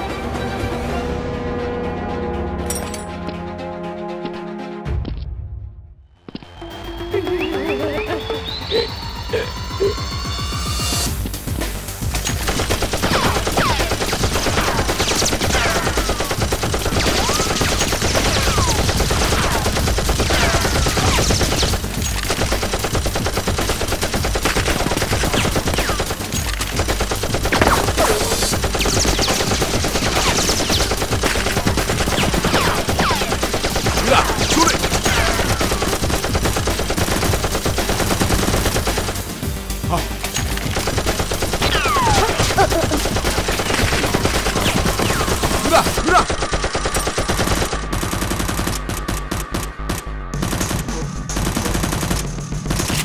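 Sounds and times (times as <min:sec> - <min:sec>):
rapid automatic gunfire: 0:12.2 - 0:39.4, 0:40.5 - 0:53.0.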